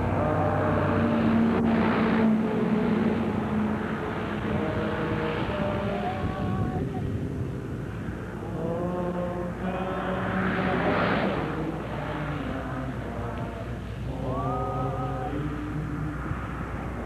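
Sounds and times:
strong wind buffeting microphone: 0.0s - 17.0s.

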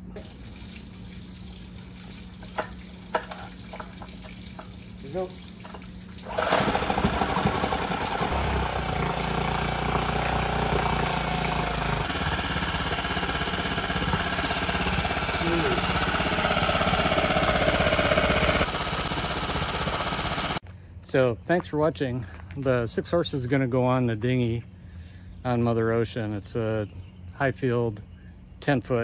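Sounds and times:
outboard engine running: 1.8s - 20.6s.

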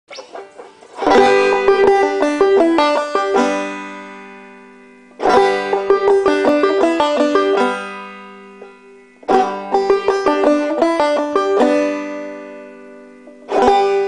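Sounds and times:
banjo picking: 0.1s - 14.0s.

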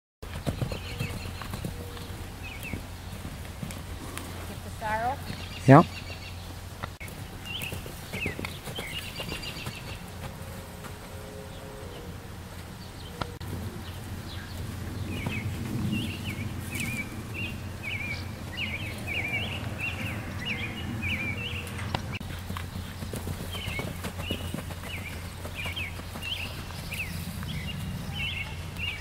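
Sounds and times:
hoofbeats on soft dirt: 0.2s - 11.6s, 13.0s - 29.0s
low rumble: 13.2s - 22.2s.

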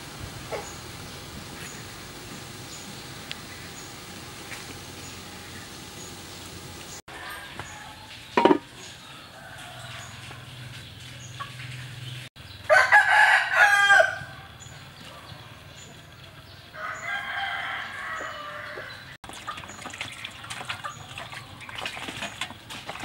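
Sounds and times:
rooster crowing: 12.7s - 14.5s, 16.8s - 19.1s.

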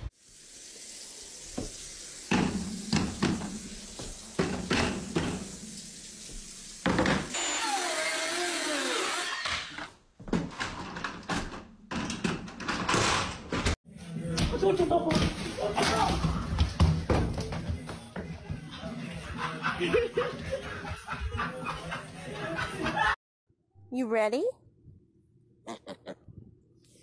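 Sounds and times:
running water: 0.0s - 7.3s.

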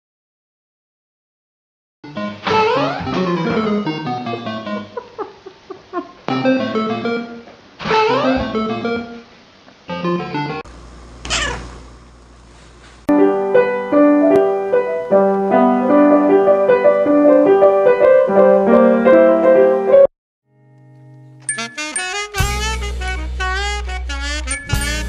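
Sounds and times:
piano music: 3.1s - 5.0s, 6.4s - 7.4s, 13.1s - 25.0s
cat meowing: 11.2s - 11.7s.

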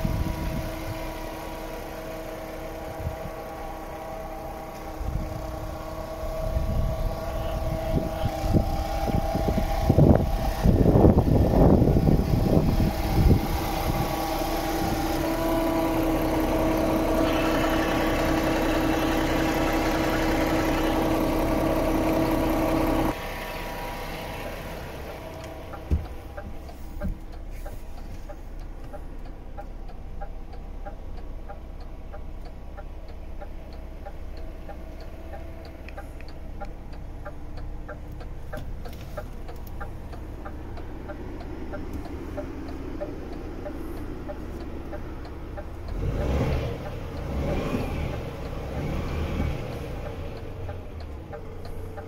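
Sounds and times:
diesel truck engine idling: 0.0s - 52.0s
light regular ticking: 25.0s - 47.4s, 48.1s - 48.8s, 49.6s - 52.0s.

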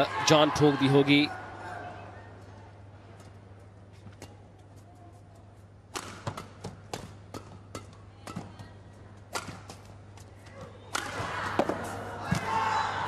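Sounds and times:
crowd noise: 0.0s - 5.7s, 8.2s - 13.0s
racket striking shuttlecock: 5.9s - 8.5s, 9.3s - 9.9s.

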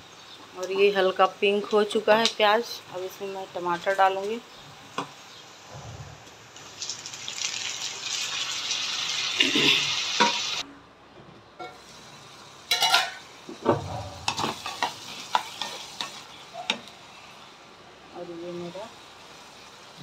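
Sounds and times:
tomatoes sizzling in butter: 6.5s - 10.6s, 11.7s - 20.0s
pot lid clattering: 12.7s - 14.9s.

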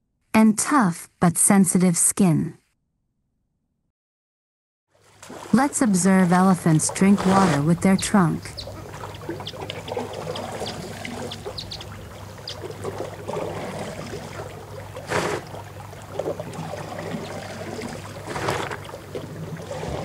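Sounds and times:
water trickling and splashing: 4.9s - 20.0s
elephants drinking water: 5.0s - 20.0s.

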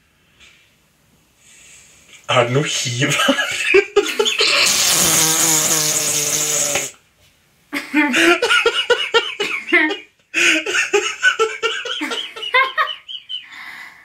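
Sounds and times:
person laughing heartily: 3.2s - 5.2s, 7.8s - 13.5s.

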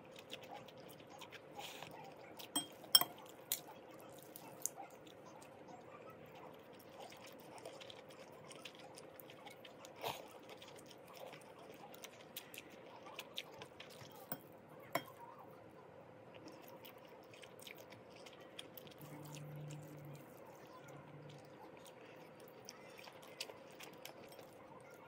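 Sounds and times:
cutlery clinking on glass: 2.6s - 3.2s, 15.0s - 15.2s.

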